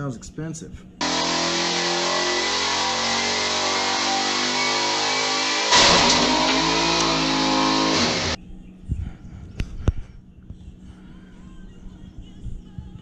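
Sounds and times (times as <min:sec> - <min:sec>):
car engine drone: 0:01.0 - 0:08.4
loud harsh noise: 0:01.0 - 0:08.4.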